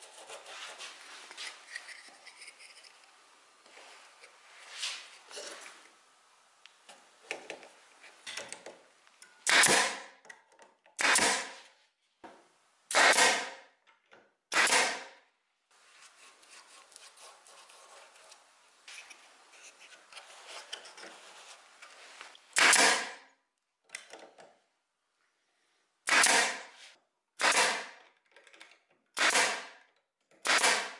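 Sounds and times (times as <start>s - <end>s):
pneumatic nailer firing: 9.4s - 10.2s, 11.0s - 11.6s, 12.9s - 13.6s, 14.5s - 15.2s, 22.6s - 23.2s, 26.0s - 26.7s, 27.4s - 28.0s, 29.2s - 29.8s, 30.4s - 30.9s
brush scratching on wood: 15.9s - 18.4s.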